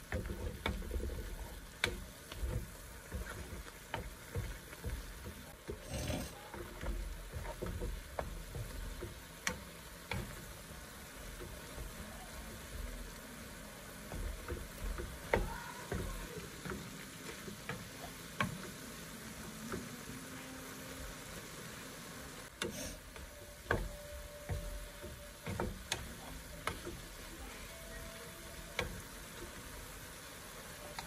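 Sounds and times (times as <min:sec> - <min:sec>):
wooden spoon scraping a pan: 0:00.0 - 0:13.1, 0:22.5 - 0:30.0
vegetables frying in oil: 0:00.0 - 0:31.0.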